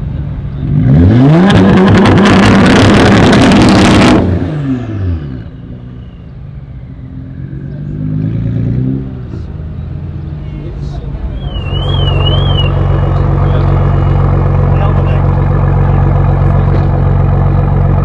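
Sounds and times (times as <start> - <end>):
car engine revving: 0.2 - 18.0
car engine idling: 9.0 - 18.0
exhaust pops crackling: 11.6 - 18.0.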